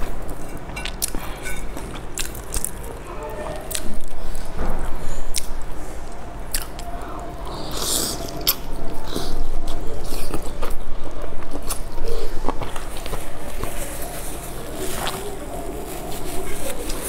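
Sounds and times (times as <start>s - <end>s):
chewing soft wet food: 6.5s - 17.0s.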